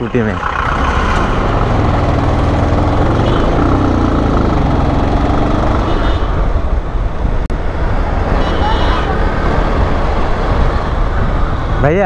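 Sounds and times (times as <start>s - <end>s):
motorcycle engine running: 0.0s - 6.3s
road and traffic noise: 0.0s - 12.0s.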